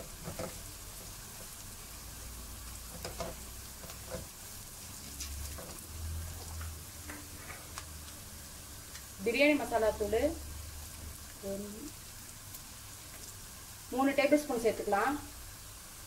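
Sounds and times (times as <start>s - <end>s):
food sizzling in oil: 0.0s - 16.0s
wooden spatula scraping pan: 2.9s - 4.3s, 5.3s - 7.8s.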